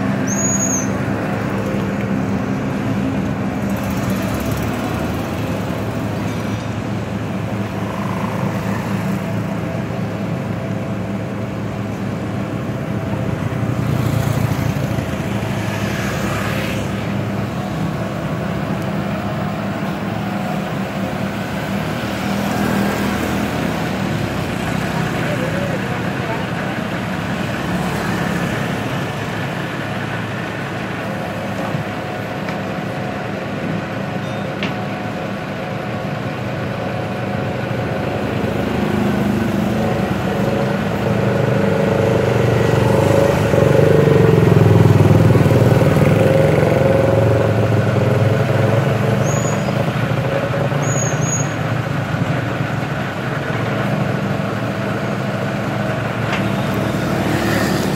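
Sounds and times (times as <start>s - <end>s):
truck engine running: 0.0s - 57.9s
vehicle passing by: 13.6s - 18.2s, 54.5s - 57.9s.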